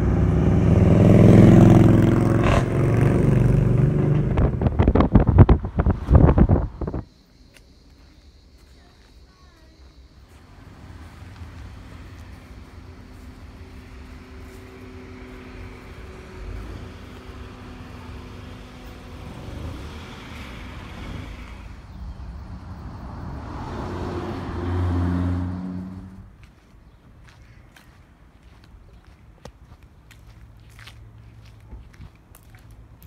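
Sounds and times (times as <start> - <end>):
vehicle engine passing close: 0.0 - 7.0, 10.3 - 26.4
road traffic: 0.0 - 33.0.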